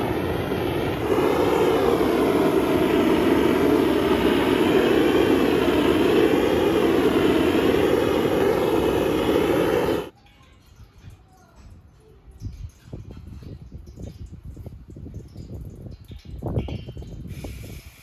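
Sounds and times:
blowtorch flame rushing: 0:00.0 - 0:10.1.

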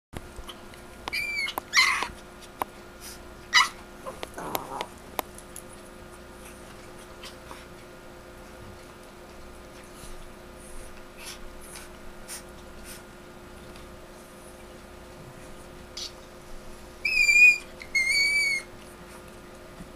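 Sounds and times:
small dog yelping and screeching: 0:01.1 - 0:02.2, 0:03.5 - 0:03.8, 0:17.0 - 0:18.7
small dog growling: 0:03.6 - 0:05.0.

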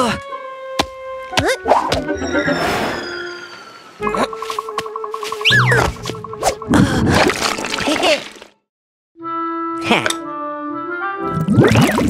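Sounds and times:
cartoon background music: 0:00.0 - 0:06.8, 0:09.2 - 0:12.0.

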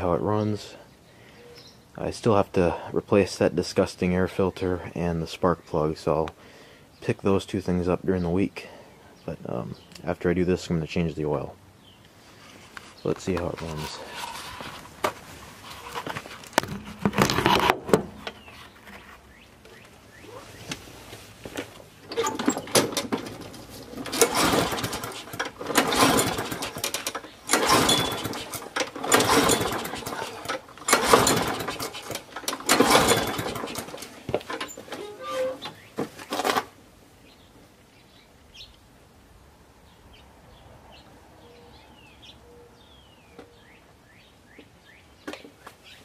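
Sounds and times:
lawn mower engine surging: 0:21.9 - 0:36.7.

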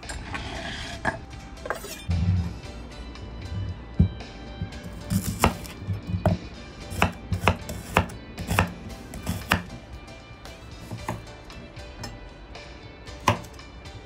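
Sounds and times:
knife chopping on wooden board: 0:04.0 - 0:09.8, 0:10.8 - 0:11.3, 0:13.2 - 0:13.6.

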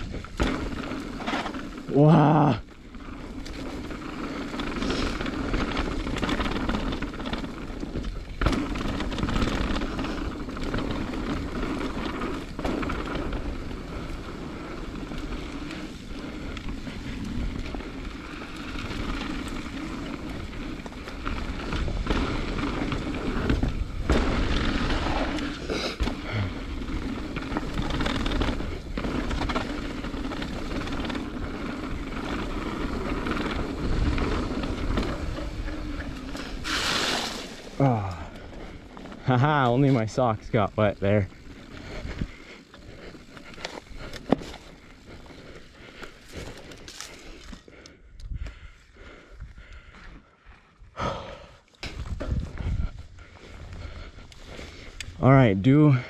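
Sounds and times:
bike rattling: 0:00.0 - 0:56.0
bike tyres rumbling on dirt: 0:00.0 - 0:56.0
wind on microphone: 0:51.8 - 0:54.0.

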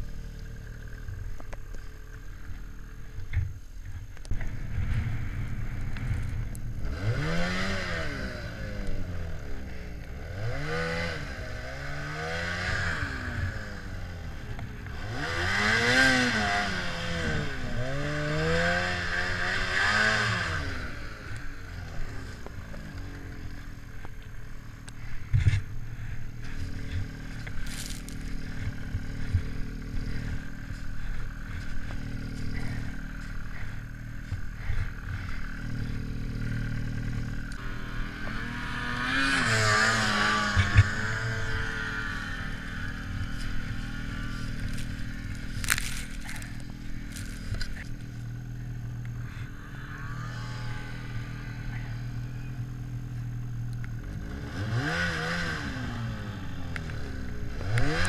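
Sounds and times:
snowmobile engine idling and revving: 0:00.0 - 0:58.0
snow scraping: 0:37.9 - 0:47.6.

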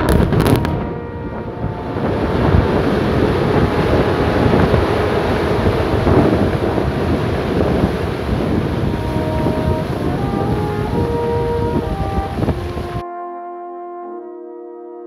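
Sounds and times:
rumble of falling rock: 0:00.0 - 0:00.9
wind on microphone: 0:00.0 - 0:13.0.

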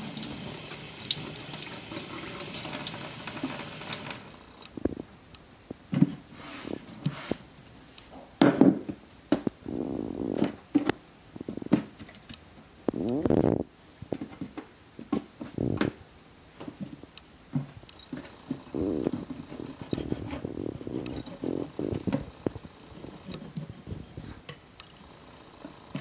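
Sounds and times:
cloth wiping wooden board: 0:06.4 - 0:07.4
towel rubbing fish: 0:18.8 - 0:24.5.

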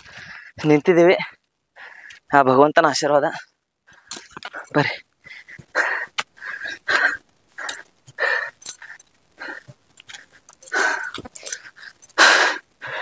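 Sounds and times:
person breathing hard: 0:00.0 - 0:00.6, 0:01.8 - 0:02.2, 0:03.9 - 0:13.0.

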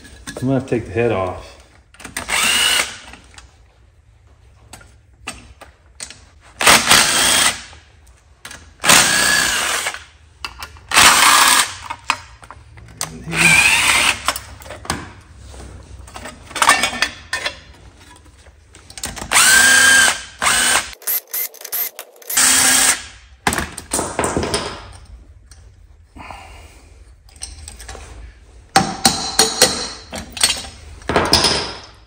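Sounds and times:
bolts and tools clattering: 0:00.0 - 0:00.8, 0:09.8 - 0:25.8, 0:27.2 - 0:32.0
cordless drill spinning: 0:02.2 - 0:03.1, 0:06.6 - 0:07.7, 0:08.8 - 0:10.1, 0:10.9 - 0:11.8, 0:13.3 - 0:14.4, 0:19.3 - 0:23.1.

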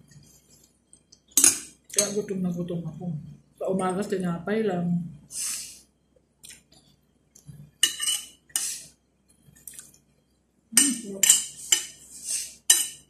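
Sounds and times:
cutlery scraping on ceramic plate: 0:07.8 - 0:08.8, 0:10.8 - 0:12.0, 0:12.7 - 0:13.0.

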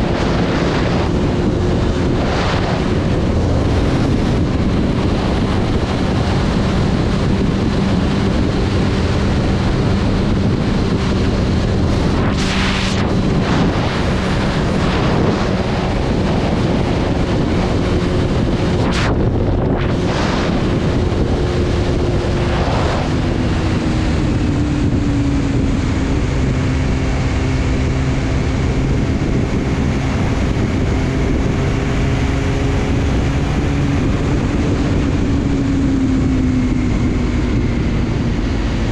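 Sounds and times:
motorcycle engine drone: 0:00.0 - 0:38.9
wind rushing over microphone: 0:00.0 - 0:38.9
brief whooshes: 0:12.1 - 0:14.1.

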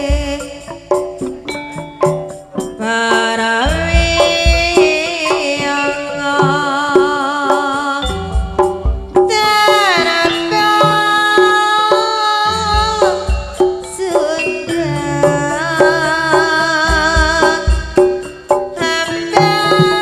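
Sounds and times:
hand drum strokes: 0:00.0 - 0:20.0
person singing wavering notes: 0:00.0 - 0:20.0.

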